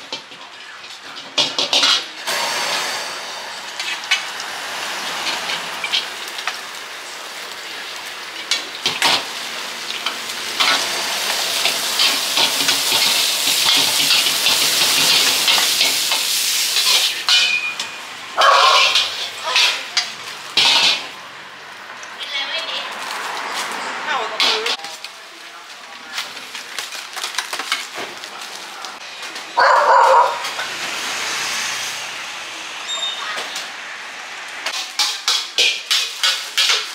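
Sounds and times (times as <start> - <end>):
food sizzling in a wok: 0.0 - 22.0, 30.3 - 36.9.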